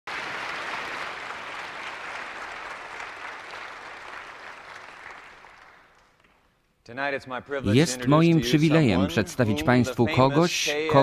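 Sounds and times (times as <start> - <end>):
audience applauding: 0.1 - 6.5.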